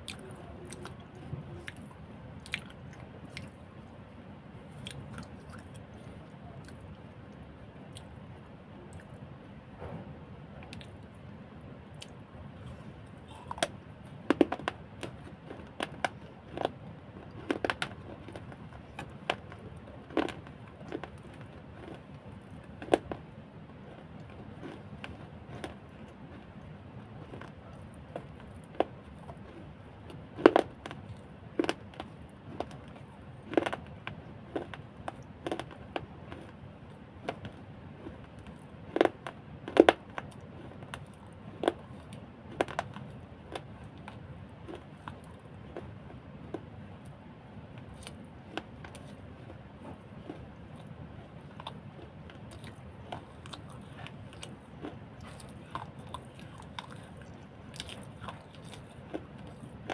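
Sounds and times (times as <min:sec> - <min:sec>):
mouth smacks and chewing clicks: 0:50.2 - 0:59.9.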